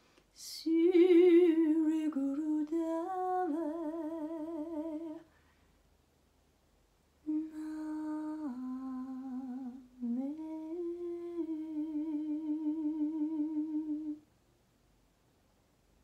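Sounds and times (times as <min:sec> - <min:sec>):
woman humming: 0:07.2 - 0:14.2.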